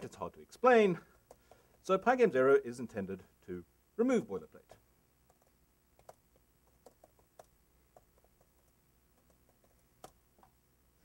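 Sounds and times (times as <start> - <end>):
laptop keyboard typing clicks: 5.3 - 10.2.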